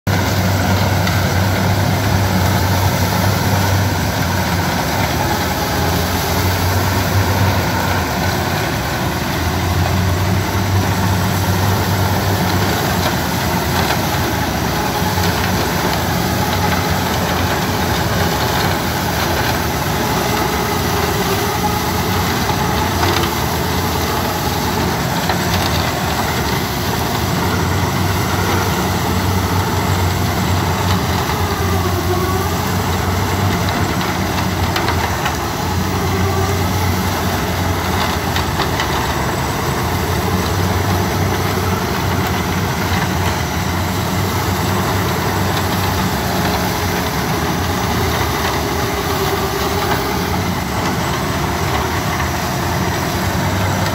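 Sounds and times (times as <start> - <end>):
harvester engine droning: 0.1 - 53.9.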